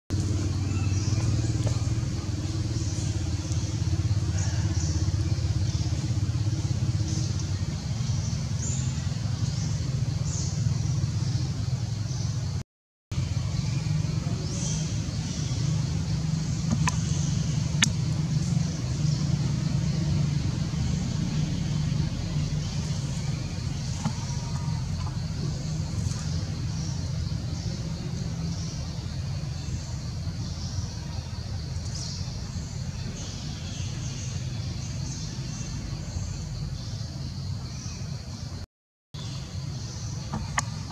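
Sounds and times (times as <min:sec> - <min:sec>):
engine idling: 0:00.1 - 0:37.6, 0:39.2 - 0:40.9
low rumble: 0:13.2 - 0:30.9.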